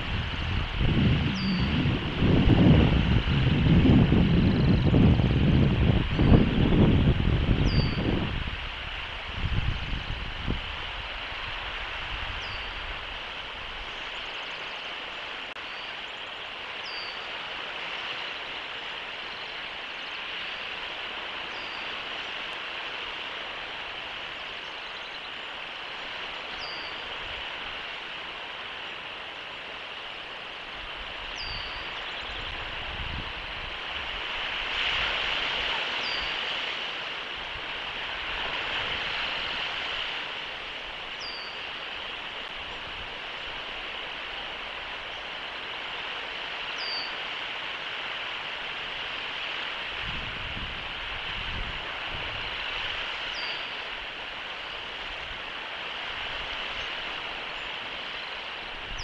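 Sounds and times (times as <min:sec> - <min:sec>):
steady rushing outdoor noise: 0:00.0 - 0:59.0
bird short high falling chirp: 0:01.3 - 0:01.8.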